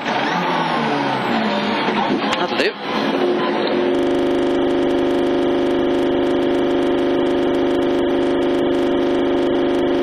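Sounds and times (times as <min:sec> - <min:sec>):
steady electronic buzz: 0:03.0 - 0:10.0.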